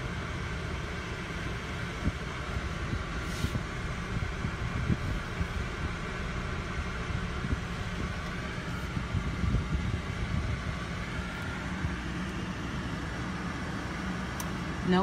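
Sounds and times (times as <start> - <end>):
car cabin hum and hiss: 0.0 - 15.0.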